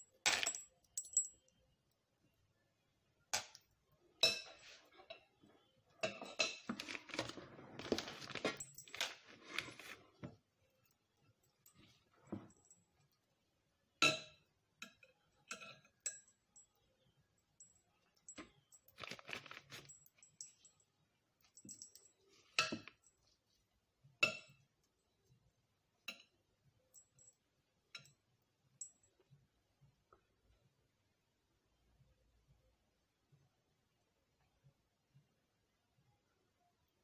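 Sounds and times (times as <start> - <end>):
metal spoon clinking on glass bowl: 14.0 - 16.8.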